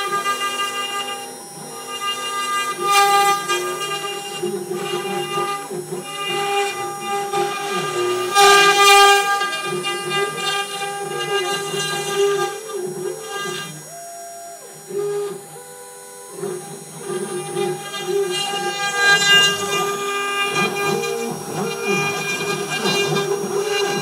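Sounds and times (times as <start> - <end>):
bit routing wood: 0.0 - 24.0
motor tones shifting in pitch: 0.0 - 24.0
router spindle whining: 0.0 - 24.0.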